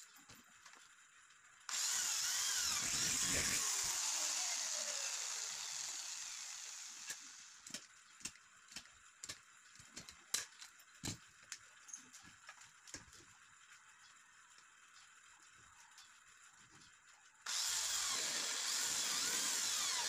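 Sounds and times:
electric drill whine: 1.7 - 7.6, 17.5 - 20.0.

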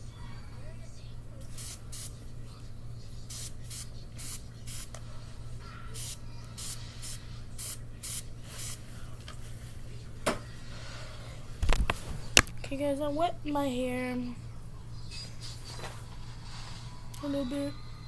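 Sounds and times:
spray bottle spritzes: 1.6 - 2.1.

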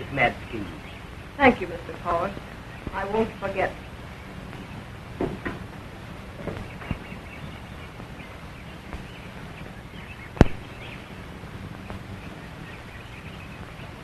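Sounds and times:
film soundtrack hiss and hum: 0.0 - 14.0
soft knocks: 5.2 - 5.7.

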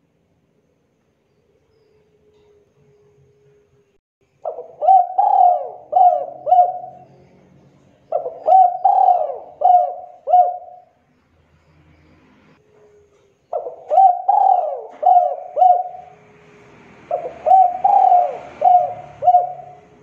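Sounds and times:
dove cooing: 4.4 - 7.2, 8.0 - 11.0, 13.5 - 16.3, 17.1 - 20.0.

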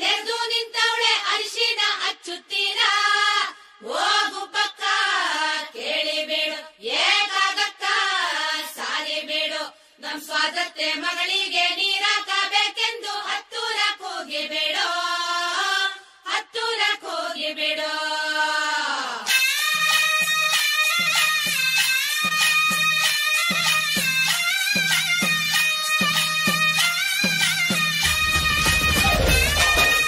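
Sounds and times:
instrumental music: 19.3 - 30.0.

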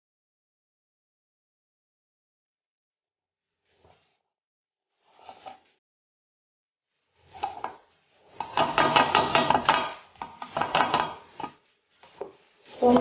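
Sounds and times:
citrus juicer clattering on glass jug: 8.4 - 11.6.

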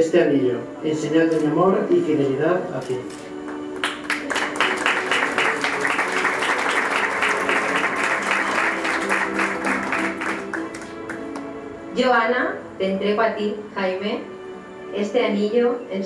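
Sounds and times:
soft background music: 0.0 - 16.0
crowd applauding: 3.5 - 11.5.

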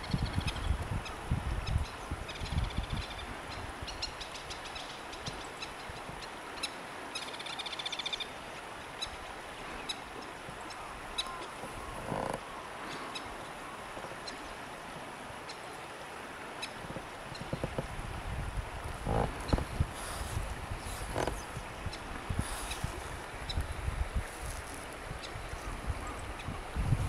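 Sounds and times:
wind noise: 0.0 - 4.1, 16.8 - 27.0.

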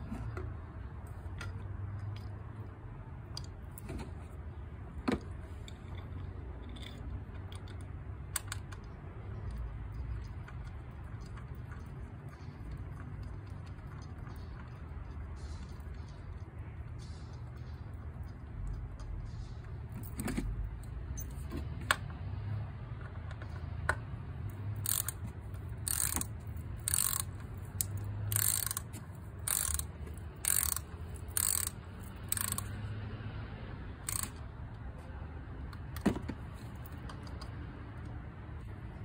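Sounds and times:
socket ratchet clicking: 5.7 - 14.8, 23.0 - 32.8, 34.0 - 34.5
tool clicking on metal: 23.0 - 32.8, 34.0 - 34.5.

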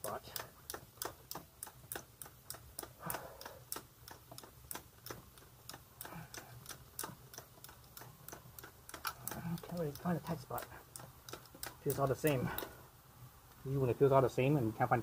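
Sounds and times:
bike chain and sprockets ticking: 0.0 - 12.8
hand brushing tyre: 5.1 - 12.7.

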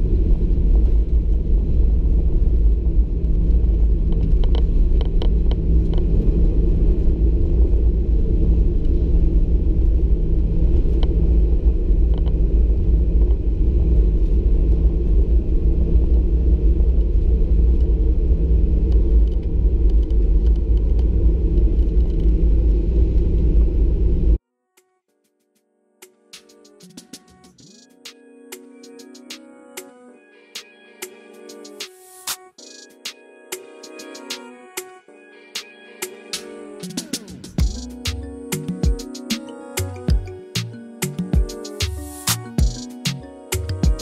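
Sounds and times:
airplane cabin engine rumble: 0.0 - 24.4.

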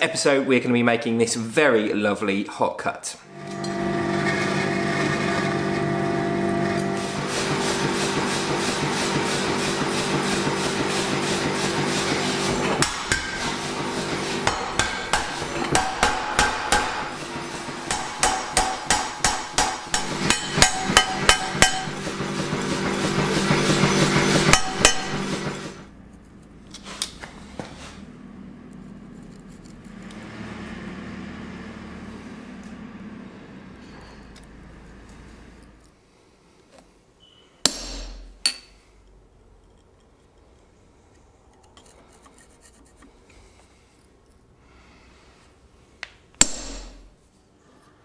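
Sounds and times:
machine hum: 3.2 - 35.9
hammer blows on hot steel: 6.8 - 25.8.

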